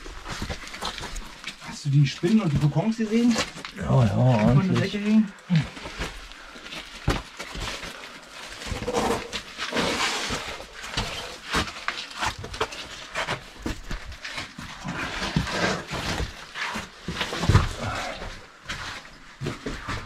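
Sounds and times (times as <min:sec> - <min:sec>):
boots and hands scraping rock: 0:05.6 - 0:20.0.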